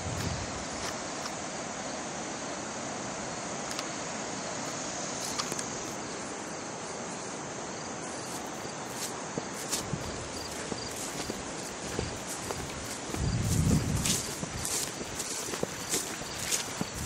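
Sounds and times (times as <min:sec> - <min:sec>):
constant broad hiss: 0:00.0 - 0:17.0
insects chirring: 0:00.0 - 0:17.0
light clicks: 0:03.6 - 0:03.9
footsteps: 0:08.0 - 0:17.0.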